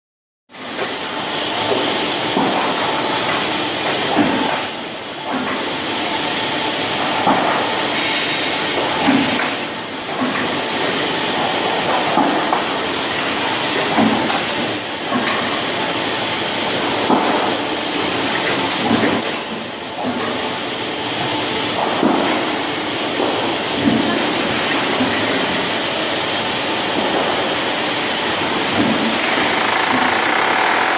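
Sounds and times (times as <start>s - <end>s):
steady machine noise: 25.0s - 30.9s.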